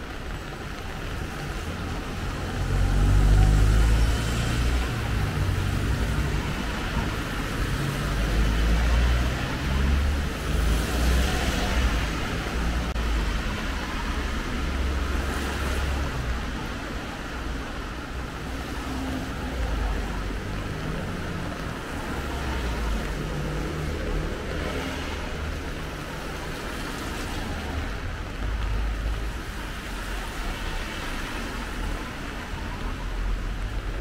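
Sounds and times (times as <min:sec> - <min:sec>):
low traffic rumble: 0:00.0 - 0:34.0
cars passing with tyre hiss: 0:02.2 - 0:16.5, 0:18.2 - 0:32.6.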